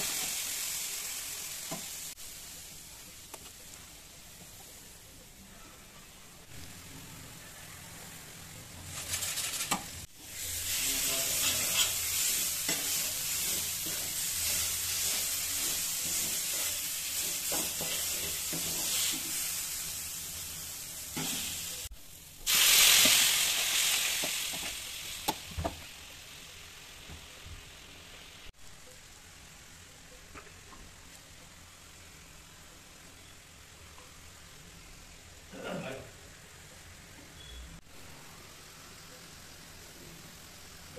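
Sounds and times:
spices sizzling in hot oil: 0.0s - 5.4s, 6.0s - 40.9s
spatula scraping a pan: 9.0s - 19.4s.

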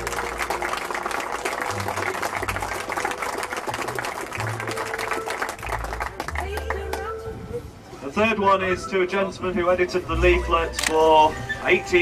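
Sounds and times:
audience applauding: 0.0s - 7.0s
music playing: 0.0s - 12.0s.

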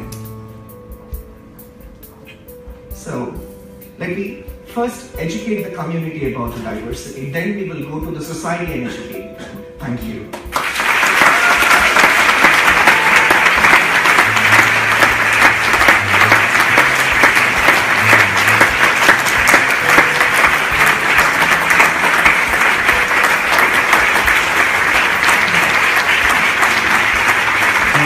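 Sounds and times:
audience applauding: 10.5s - 28.0s.

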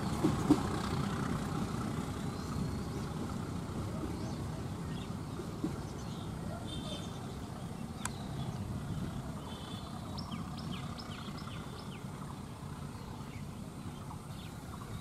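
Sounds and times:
train coaches rolling on track: 0.0s - 15.0s
bird chirping: 4.0s - 15.0s.

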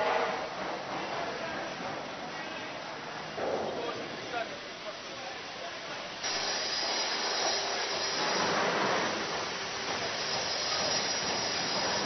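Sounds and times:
mechanical hissing with high squeal: 6.2s - 8.4s, 10.0s - 12.0s.

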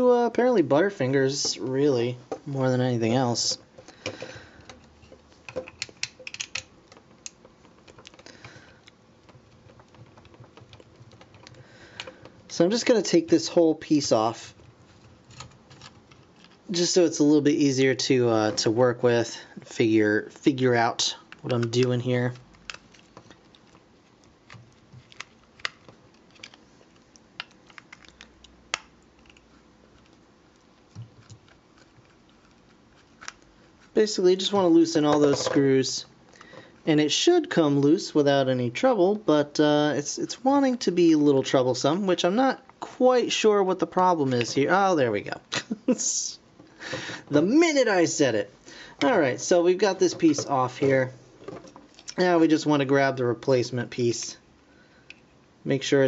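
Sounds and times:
plastic parts clicking: 3.8s - 12.6s, 21.3s - 23.8s, 24.4s - 30.2s, 30.8s - 33.5s
screwdriver clicks and taps: 5.5s - 8.2s.

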